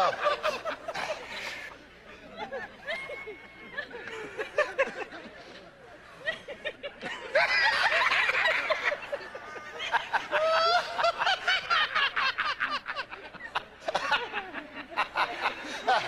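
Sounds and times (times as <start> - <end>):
men laughing: 0.0 - 16.0.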